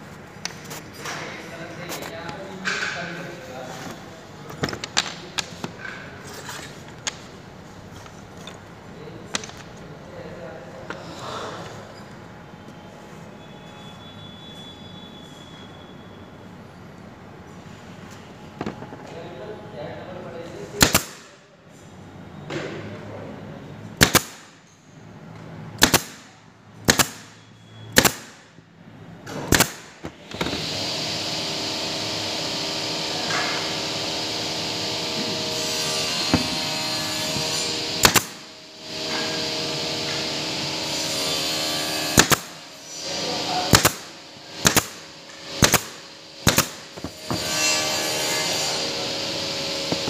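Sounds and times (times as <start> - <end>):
power tool running: 29.5 - 50.0.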